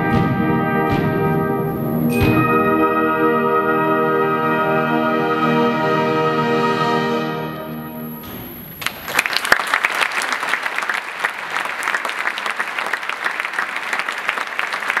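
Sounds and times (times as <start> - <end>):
wind orchestra chord: 0.0 - 8.3
audience applause: 8.8 - 15.0.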